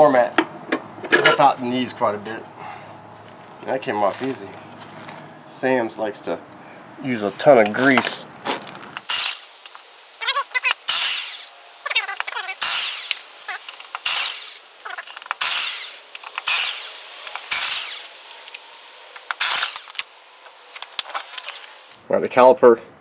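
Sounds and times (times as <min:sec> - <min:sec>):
impact wrench bursts: 0:09.0 - 0:22.0.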